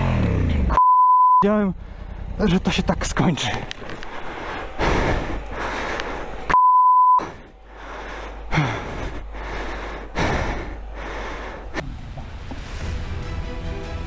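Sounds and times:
censor bleep tone: 0.8s - 1.5s, 6.5s - 7.2s
heavy hard breathing: 3.8s - 6.6s, 7.2s - 11.8s.

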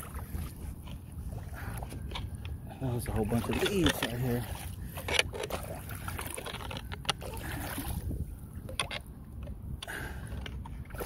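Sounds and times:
floodwater sloshing and splashing: 0.0s - 11.0s.

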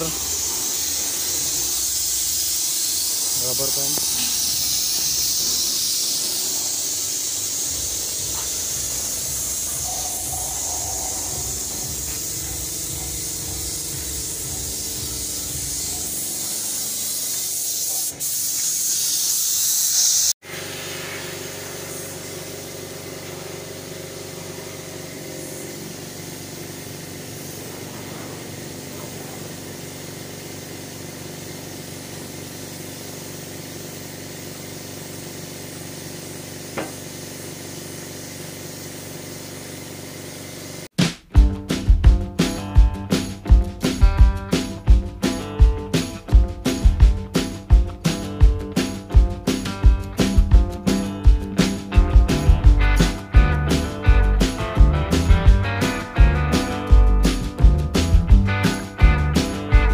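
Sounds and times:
spray gun hissing: 0.0s - 40.9s.

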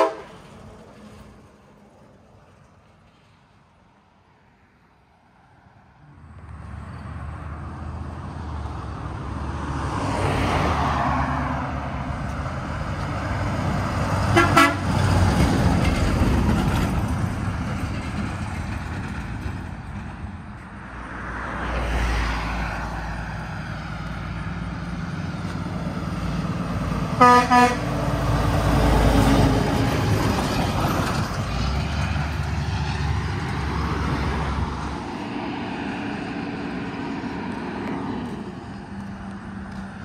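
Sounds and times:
truck horn toot: 0.0s - 0.4s, 14.3s - 15.0s, 27.2s - 28.0s
truck diesel engine passing: 0.0s - 3.5s, 5.5s - 40.0s
traffic noise: 0.0s - 40.0s.

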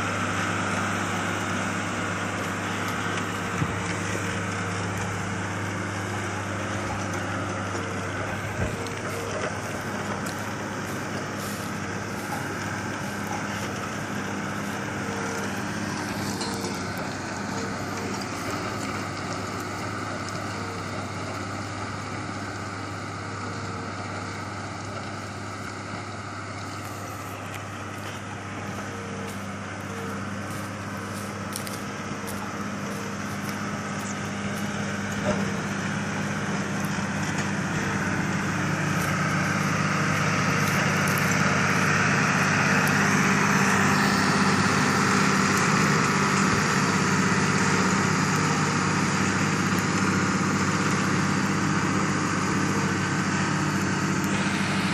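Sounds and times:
tractor engine under load: 0.0s - 54.9s.

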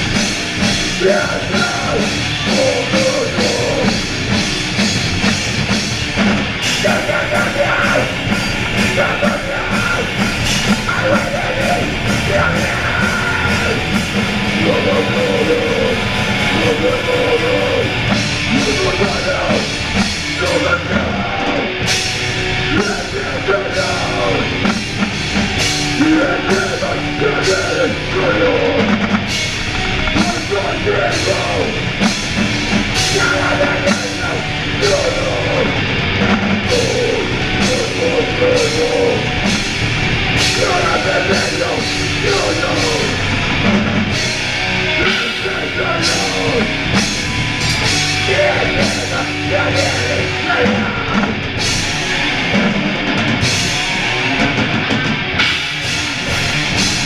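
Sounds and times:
bass guitar: 0.0s - 57.0s
distorted electric guitar: 0.0s - 57.0s
drum kit with cymbal hits: 0.0s - 57.0s
person singing into microphone: 1.0s - 4.0s, 6.7s - 8.2s, 8.8s - 19.8s, 20.4s - 21.7s, 22.7s - 24.7s, 26.0s - 29.0s, 30.0s - 31.9s, 33.0s - 36.0s, 36.6s - 39.4s, 40.4s - 43.4s, 44.9s - 46.7s, 48.0s - 51.3s.

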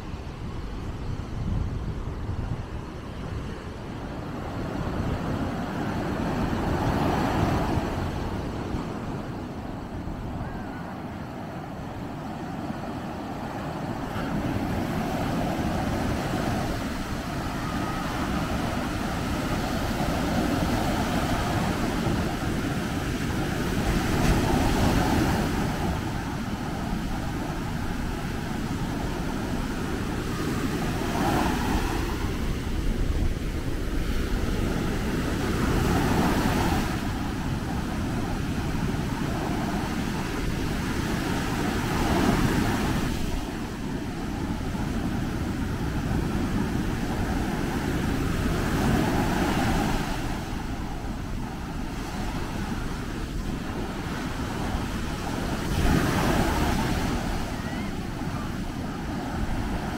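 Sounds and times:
waves breaking on a sandy beach: 0.0s - 59.9s.

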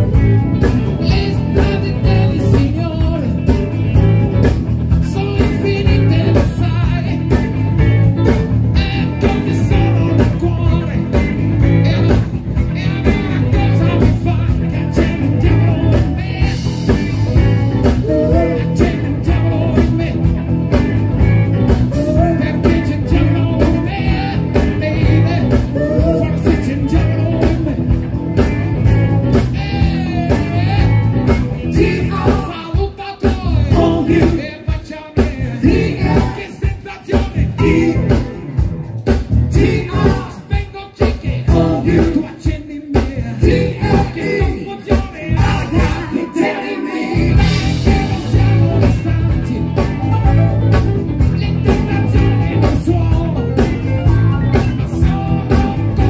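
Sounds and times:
song with singing and guitar: 0.0s - 56.0s.

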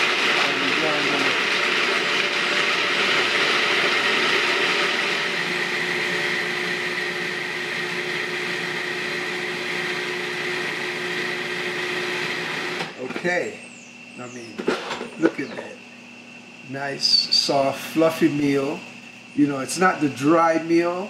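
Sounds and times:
food processor whirring: 0.0s - 13.0s
steady hum: 13.0s - 21.0s.

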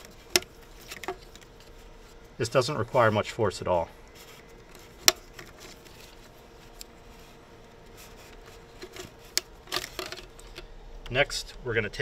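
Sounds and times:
faint rustles of hands: 5.5s - 9.4s.

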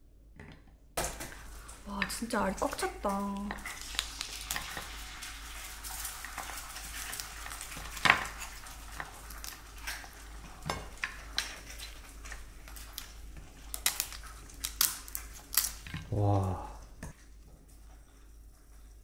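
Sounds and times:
crab shell crackling and squelching: 1.1s - 19.0s
sharp shell cracks: 13.7s - 16.0s.

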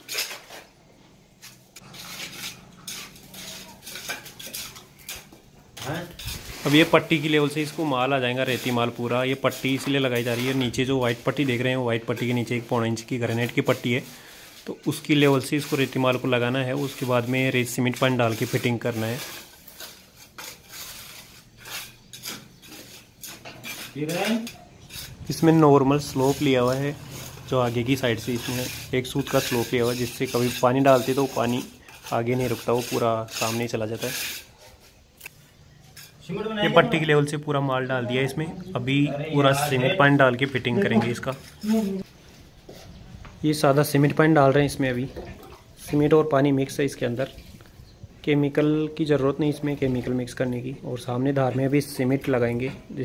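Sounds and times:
mortar scraping on concrete: 1.4s - 37.2s.

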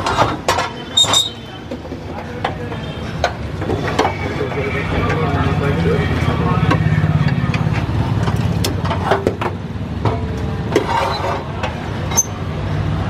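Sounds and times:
ladle scraping steel pot: 10.6s - 12.4s.

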